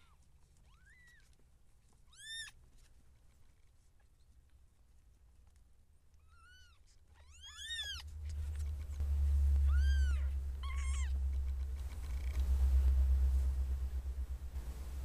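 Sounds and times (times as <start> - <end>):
loud low rumble: 7.9 - 15.0.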